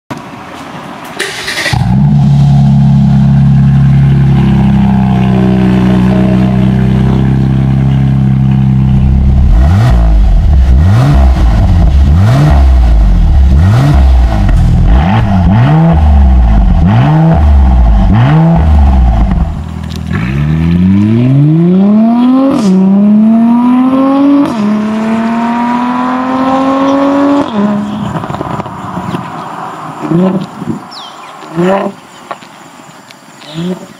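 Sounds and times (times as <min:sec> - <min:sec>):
car engine idling: 0:01.2 - 0:20.1
engine revs blipped: 0:01.2 - 0:29.1
car accelerating through upshifts: 0:01.5 - 0:29.3.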